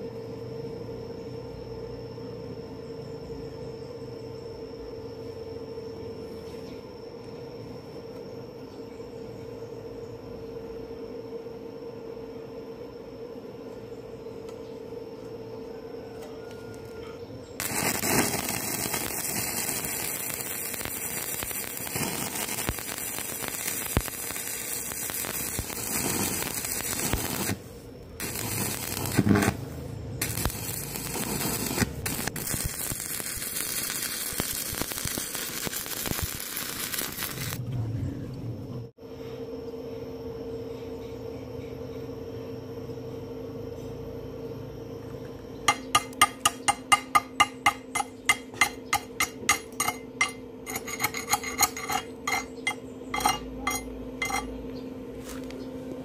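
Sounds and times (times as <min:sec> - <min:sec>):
welding arc crackling: 0:17.6 - 0:37.6.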